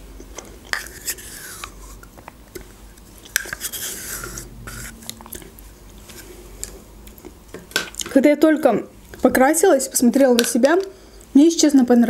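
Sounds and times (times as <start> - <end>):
wet mouth eating sounds: 0.2 - 8.1
teaspoon scraping plastic cup: 0.6 - 2.2, 3.3 - 6.3.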